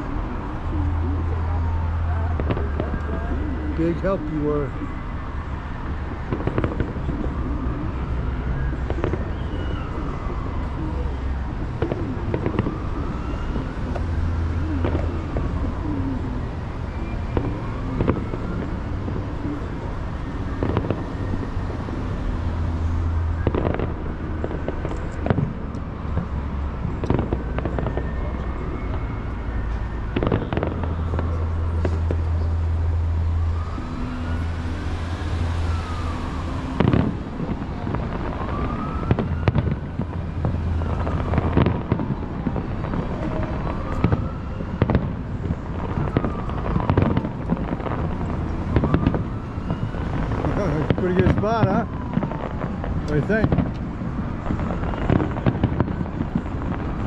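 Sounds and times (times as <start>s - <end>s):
emergency siren wailing: 0.0s - 57.0s
fireworks booming and crackling: 0.0s - 57.0s
low traffic rumble: 0.0s - 57.0s.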